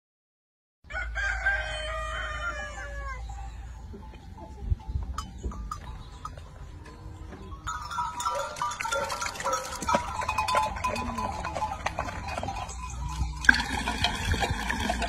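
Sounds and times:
rooster crowing: 0:00.9 - 0:03.5.

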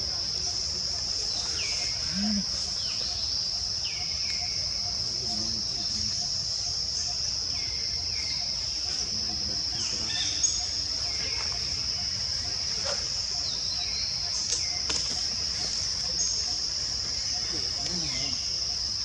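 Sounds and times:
insects droning: 0:00.0 - 0:19.0.

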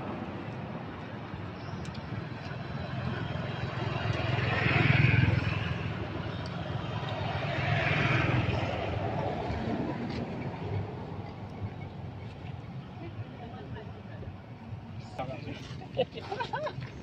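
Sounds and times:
vehicles passing: 0:00.0 - 0:17.0.

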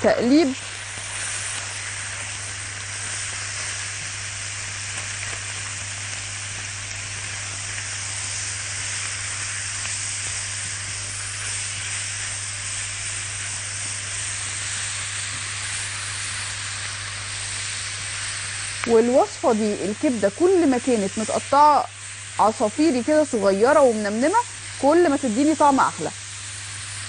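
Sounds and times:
food sizzling in a wok: 0:00.0 - 0:27.0.

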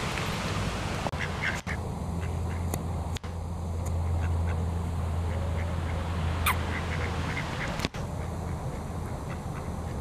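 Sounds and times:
ducks quacking: 0:01.1 - 0:02.7, 0:04.1 - 0:10.0.

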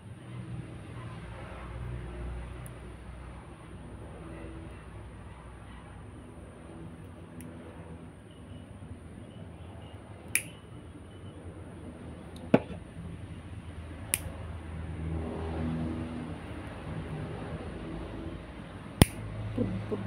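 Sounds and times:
nail clipper snipping nails: 0:14.0 - 0:14.3, 0:19.0 - 0:19.3.

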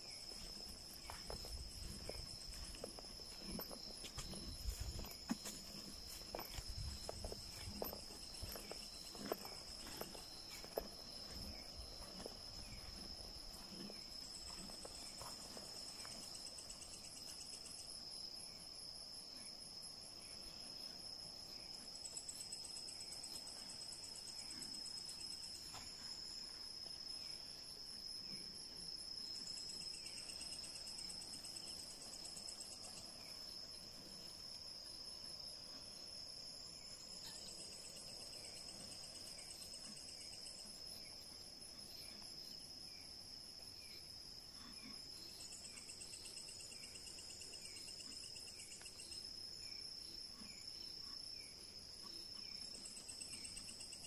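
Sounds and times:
footsteps on forest floor: 0:00.0 - 0:16.2
high-pitched cricket trill: 0:00.0 - 0:54.0
pulsing insect call: 0:00.0 - 0:54.0.

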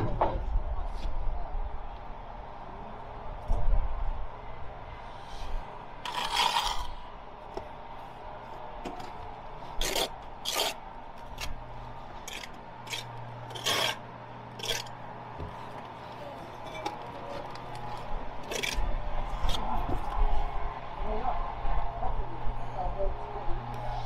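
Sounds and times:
trowel scraping mortar on bricks: 0:06.0 - 0:07.0, 0:09.8 - 0:11.5, 0:12.2 - 0:14.0, 0:14.6 - 0:15.0, 0:17.6 - 0:18.8.

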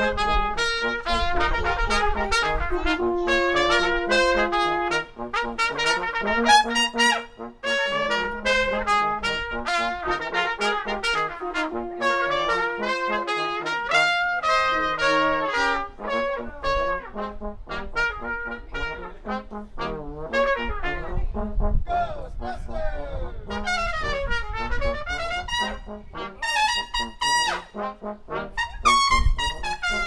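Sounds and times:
wind rumble on microphone: 0:00.0 - 0:04.8, 0:15.8 - 0:26.8, 0:28.5 - 0:30.0
brass quartet playing pop-funk: 0:00.0 - 0:30.0.

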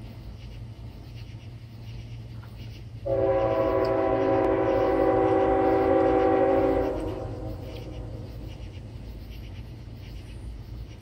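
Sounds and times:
low steady hum: 0:00.0 - 0:11.0
locomotive air horn chord: 0:03.1 - 0:08.2.

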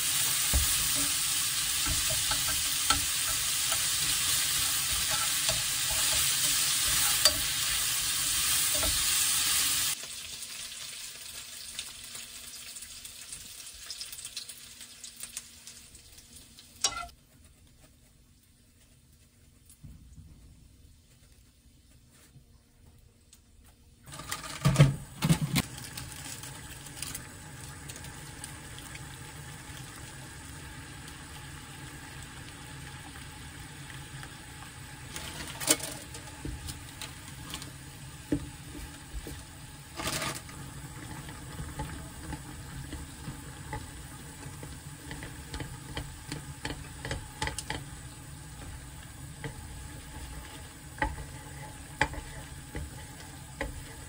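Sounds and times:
broth bubbling in a pan: 0:00.0 - 0:17.2, 0:25.6 - 0:54.0
chopsticks stirring noodles: 0:01.8 - 0:07.6, 0:40.0 - 0:54.0.

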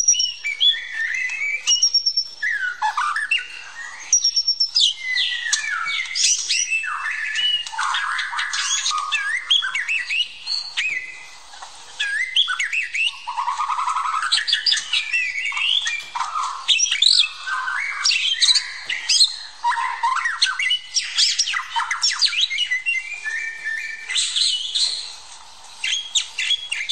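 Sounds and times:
songbird singing whistles and trills: 0:00.0 - 0:26.9.

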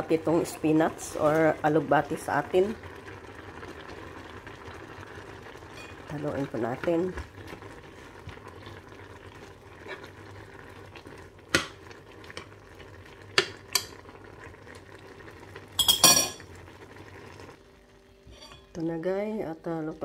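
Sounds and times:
metal spoon clinking against pan: 0:15.8 - 0:16.4.

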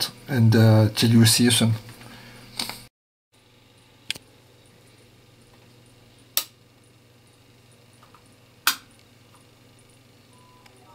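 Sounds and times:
faint low hum: 0:03.6 - 0:10.9.

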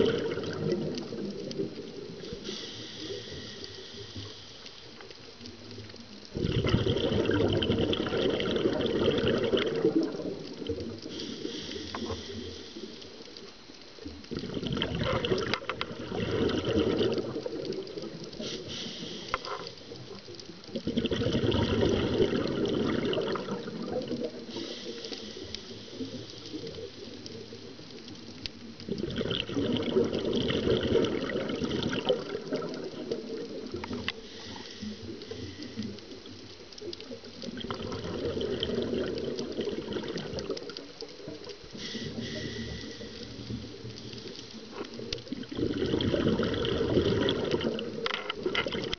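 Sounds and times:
exhaled bubbles underwater: 0:00.0 - 0:48.9
regulator inhalations: 0:02.2 - 0:04.9, 0:11.0 - 0:13.2, 0:18.4 - 0:19.9, 0:24.4 - 0:27.0, 0:33.8 - 0:36.1, 0:41.7 - 0:44.8.

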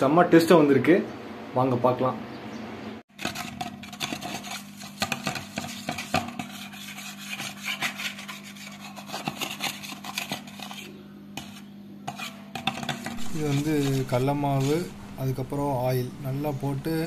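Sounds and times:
metal spoon scraping metal bowl: 0:03.1 - 0:17.0
spoon stirring batter: 0:03.1 - 0:17.0.

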